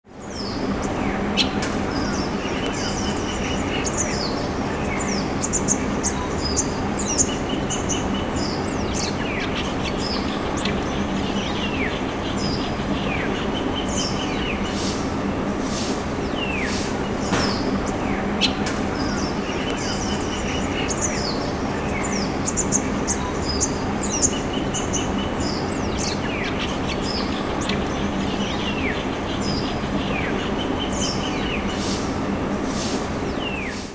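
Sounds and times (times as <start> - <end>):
wild birds chirping: 0.1 - 33.9.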